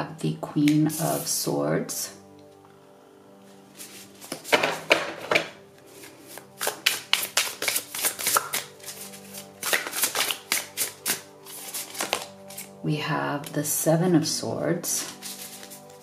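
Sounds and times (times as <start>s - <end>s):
soft background music: 0.0s - 16.0s
cards shuffling and slapping: 3.8s - 12.8s, 15.1s - 16.0s.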